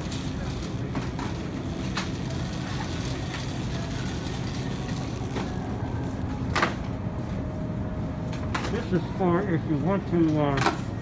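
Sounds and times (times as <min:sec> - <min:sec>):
shopping cart wheels rumbling: 0:00.0 - 0:07.1.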